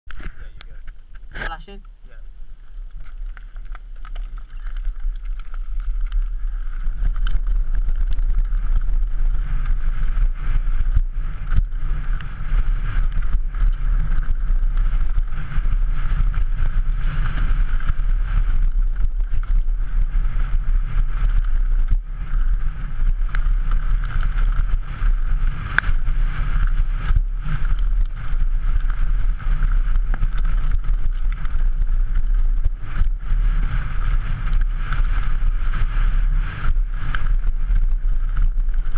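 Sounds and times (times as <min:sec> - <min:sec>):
wind rushing over camera: 0:00.1 - 0:38.9
mountain bike rattling on stony track: 0:02.4 - 0:38.9.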